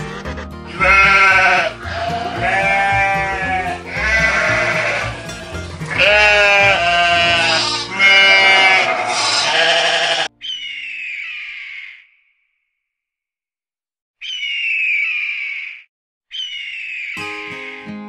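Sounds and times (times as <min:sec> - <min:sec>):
low background music: 0:00.0 - 0:10.4
sheep bleating: 0:00.0 - 0:10.4.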